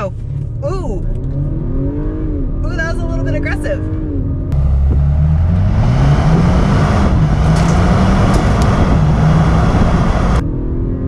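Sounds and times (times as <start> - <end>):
turbocharged car engine pulling: 0.0 - 10.4
heavy wind noise: 2.6 - 10.5.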